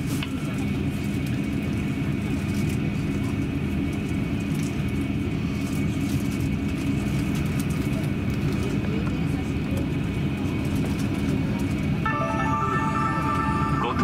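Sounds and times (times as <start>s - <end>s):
aircraft cabin drone: 0.0s - 14.0s
thin high whine: 12.1s - 14.0s.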